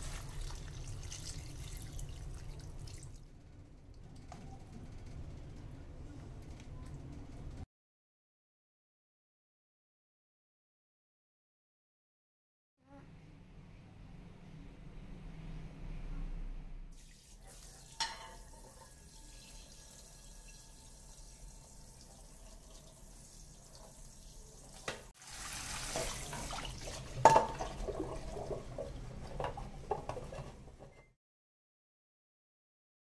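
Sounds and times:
tap running water: 17.0s - 30.8s
cookware clanking against sink: 17.8s - 19.0s, 25.9s - 31.1s
cookware knocking in metal sink: 17.9s - 18.6s, 26.0s - 30.6s.

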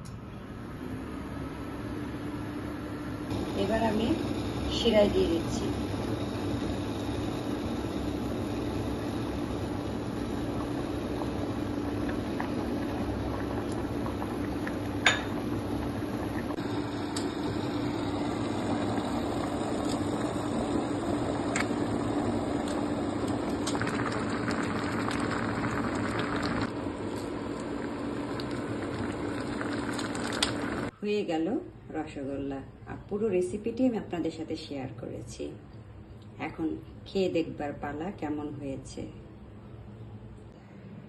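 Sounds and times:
low hum: 0.0s - 31.0s
syrup boiling and bubbling: 3.3s - 30.9s.

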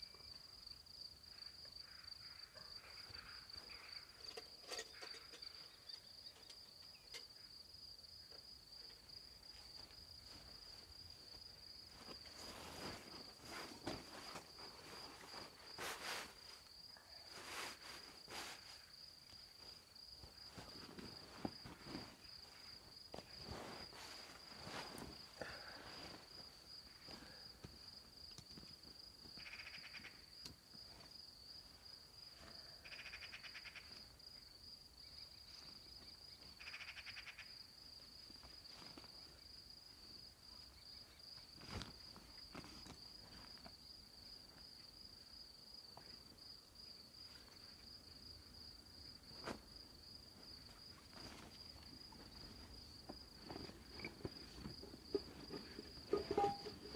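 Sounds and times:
crickets chirping: 0.0s - 56.9s
rustling and handling noises: 9.5s - 27.9s, 41.6s - 43.7s, 50.3s - 56.9s.

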